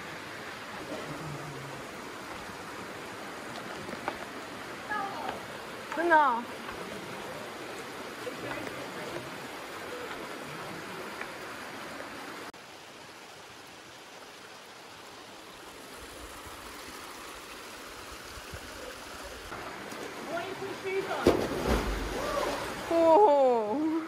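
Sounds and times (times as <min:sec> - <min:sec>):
stream water rushing over rocks: 0:00.0 - 0:24.0.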